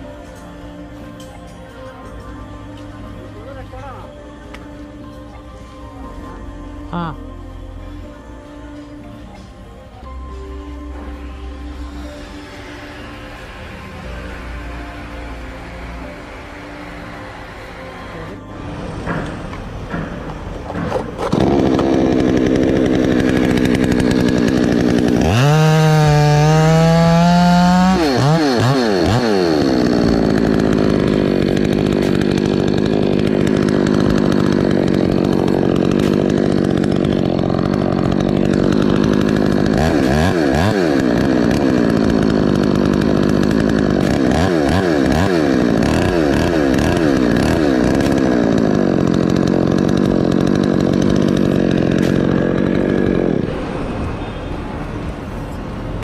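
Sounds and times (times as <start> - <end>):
chainsaw cutting through trunk: 10.3 - 56.0.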